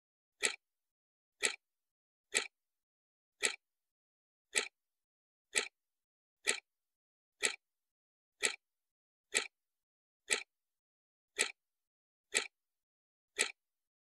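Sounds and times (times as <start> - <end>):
sharp ticks: 0.4 - 0.6, 1.4 - 1.6, 2.3 - 2.5, 3.4 - 3.6, 4.5 - 4.8, 5.5 - 5.8, 6.4 - 6.7, 7.4 - 7.6, 8.4 - 8.6, 9.3 - 9.5, 10.3 - 10.5, 11.4 - 11.6, 12.3 - 12.6, 13.4 - 13.6.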